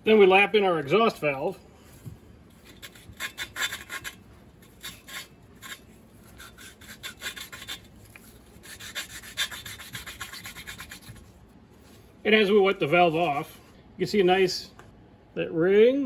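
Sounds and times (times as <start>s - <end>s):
valve grinding raspy scraping: 2.4s - 11.3s.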